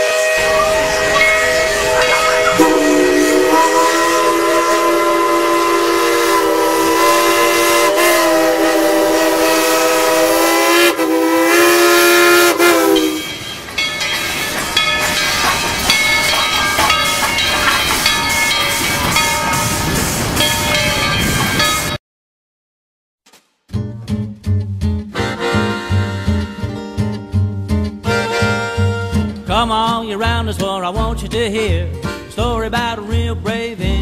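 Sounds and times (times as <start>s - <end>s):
train whistle chord: 0.0s - 13.4s.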